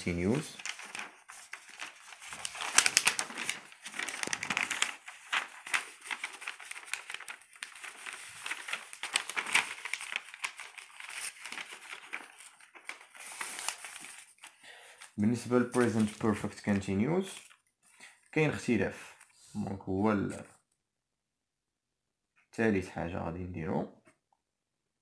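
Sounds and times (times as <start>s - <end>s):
paper rustling and crinkling: 0.0s - 19.4s.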